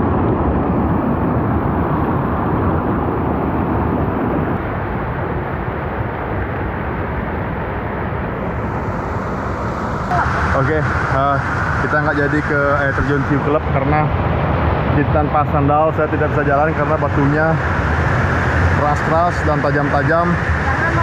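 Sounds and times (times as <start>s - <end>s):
stream rushing over boulders: 15.2s - 21.0s.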